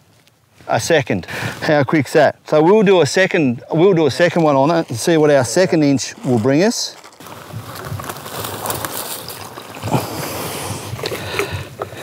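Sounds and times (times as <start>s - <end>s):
water splashing and sloshing: 7.0s - 12.0s.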